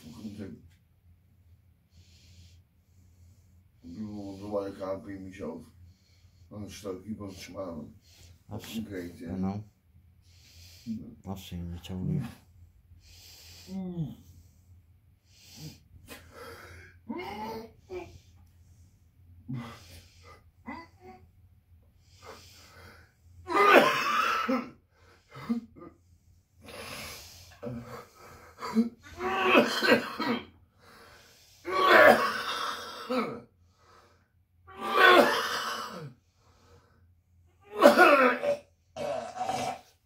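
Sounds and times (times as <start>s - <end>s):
strained breathing: 1.9s - 9.0s, 10.1s - 11.2s, 21.8s - 23.4s, 30.5s - 31.7s, 36.1s - 37.2s
man coughing and heaving: 23.5s - 24.8s, 27.6s - 30.6s, 31.7s - 33.5s, 34.8s - 36.2s, 37.6s - 40.0s.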